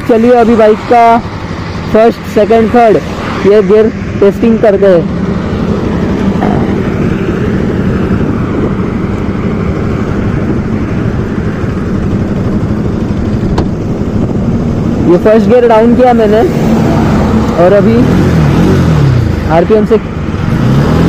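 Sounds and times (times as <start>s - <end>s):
motorcycle engine idling: 8.8s - 16.0s.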